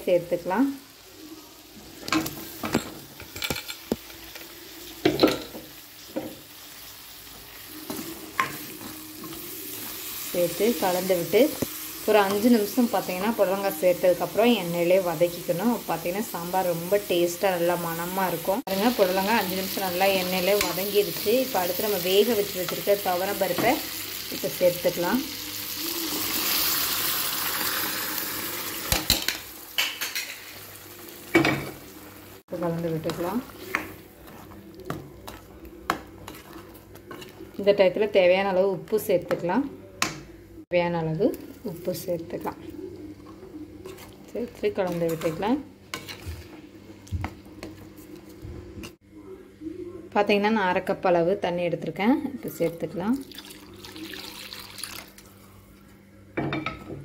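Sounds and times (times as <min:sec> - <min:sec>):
light sizzle: 0:00.0 - 0:38.3
spoon scraping pan: 0:32.6 - 0:37.7, 0:43.2 - 0:46.6.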